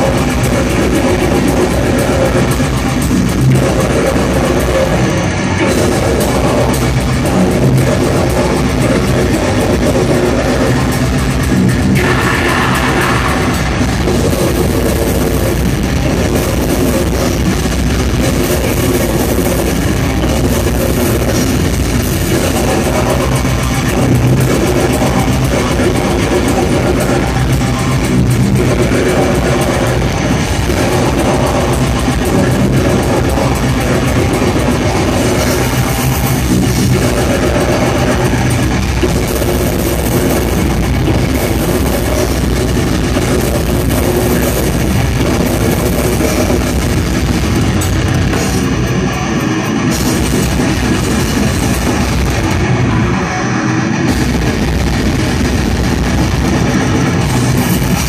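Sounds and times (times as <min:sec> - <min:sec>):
bass guitar: 0:00.0 - 0:58.0
distorted electric guitars: 0:00.0 - 0:58.0
drum kit: 0:00.0 - 0:58.0
vocalist growling: 0:11.8 - 0:17.2.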